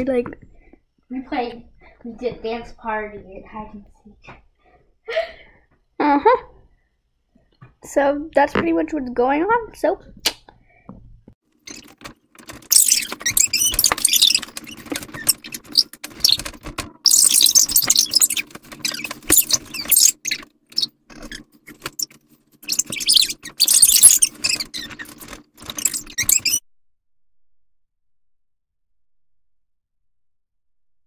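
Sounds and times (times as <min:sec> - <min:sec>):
clicks and squeaks: 0:11.6 - 0:26.6.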